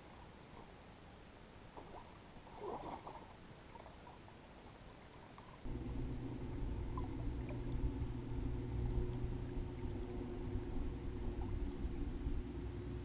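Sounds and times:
electric outboard motor humming: 0:05.7 - 0:13.0.

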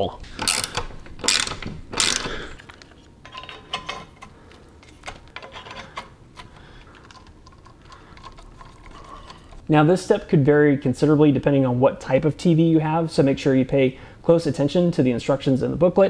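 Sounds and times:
hand ratchet clicking: 0:00.3 - 0:02.7.

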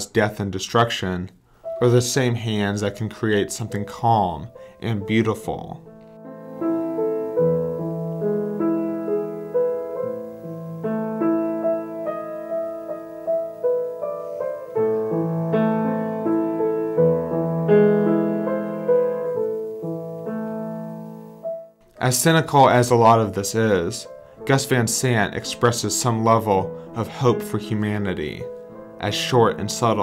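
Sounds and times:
slow solo piano piece: 0:05.8 - 0:21.8, 0:28.3 - 0:29.8.

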